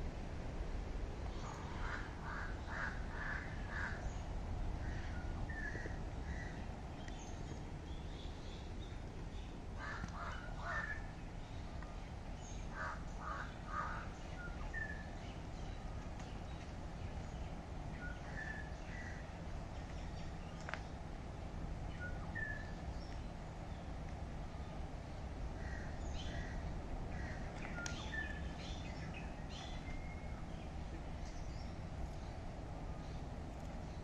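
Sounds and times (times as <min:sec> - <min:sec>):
low outdoor rumble: 0:00.0 - 0:34.0
crows cawing: 0:01.8 - 0:04.0, 0:09.8 - 0:11.0, 0:12.8 - 0:14.1.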